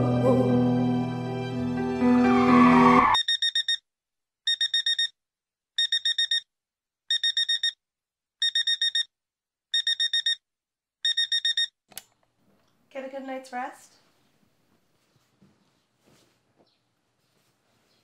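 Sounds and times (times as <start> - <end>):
alarm clock beeping: 3.1 - 3.8, 4.5 - 5.1, 5.8 - 6.5, 7.1 - 7.8, 8.4 - 9.1, 9.8 - 10.4, 11.0 - 11.8.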